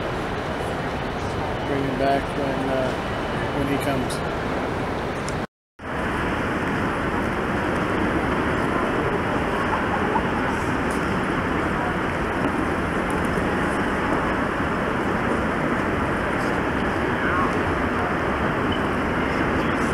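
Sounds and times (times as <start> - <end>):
crowd noise in a terminal hall: 6.9 - 19.9.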